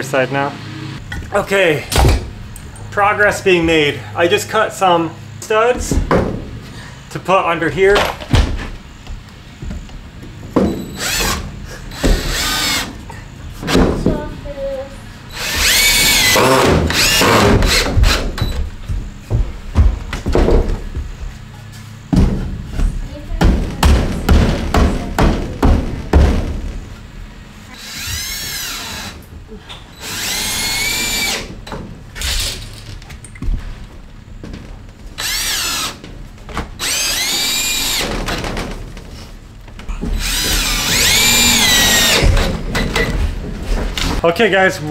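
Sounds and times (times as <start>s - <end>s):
cordless drill driving screws: 11.0s - 13.0s, 15.3s - 18.5s, 27.8s - 29.2s, 30.0s - 31.5s, 35.2s - 36.0s, 36.8s - 38.1s, 40.2s - 42.5s.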